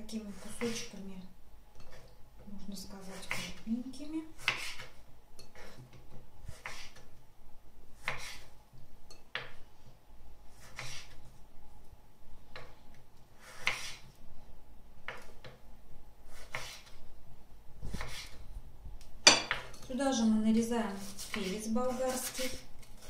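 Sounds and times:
knife slicing on wooden board: 0:04.4 - 0:05.0, 0:06.5 - 0:07.1, 0:08.0 - 0:08.5, 0:10.5 - 0:11.2, 0:13.4 - 0:14.1, 0:16.3 - 0:17.0, 0:17.9 - 0:18.4, 0:21.0 - 0:23.0.

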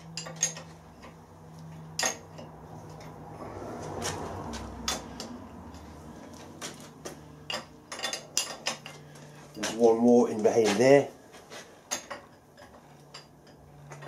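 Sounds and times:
spanner clinking on metal: 0:00.0 - 0:03.2, 0:04.8 - 0:05.9, 0:07.4 - 0:11.0, 0:11.9 - 0:14.0
steady low hum: 0:00.0 - 0:14.0.

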